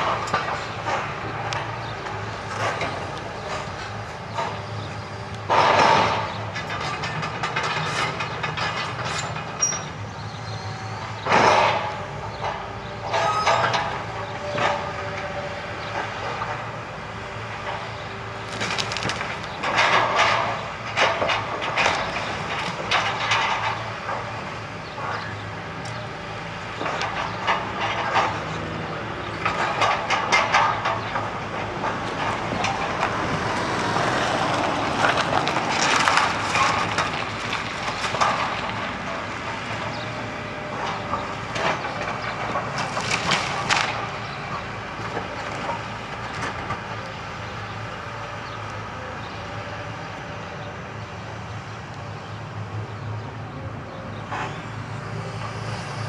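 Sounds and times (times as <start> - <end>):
excavator diesel engine running: 0.0 - 56.0
wood cracking: 18.4 - 23.7, 34.1 - 38.9, 41.5 - 44.2.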